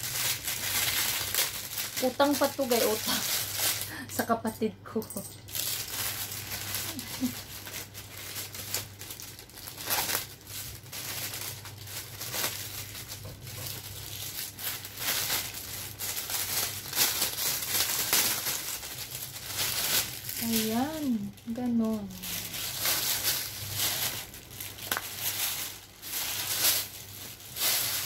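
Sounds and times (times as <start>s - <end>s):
plastic bags crinkling: 0.0s - 28.0s.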